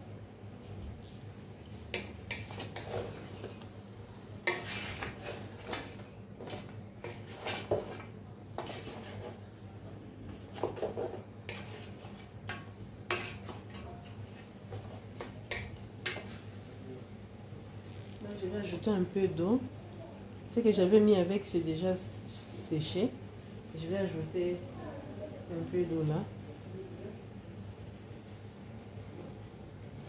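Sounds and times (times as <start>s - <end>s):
spatula scraping a cooking pot: 1.9s - 3.7s, 4.4s - 9.5s, 10.4s - 16.4s.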